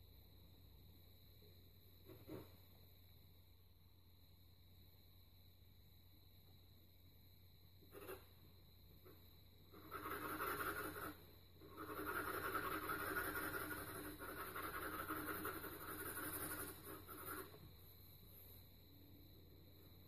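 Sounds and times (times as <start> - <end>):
pencil shading on paper: 7.9 - 8.4, 9.1 - 17.9.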